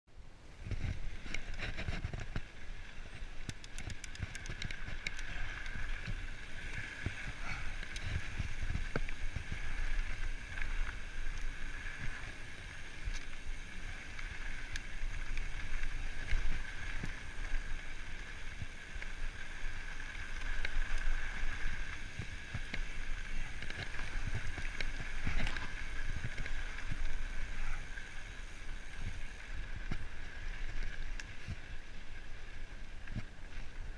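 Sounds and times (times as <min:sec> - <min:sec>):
bike tyres on dirt and rock: 0:00.1 - 0:33.9
bike rattles and clicks: 0:00.5 - 0:33.9.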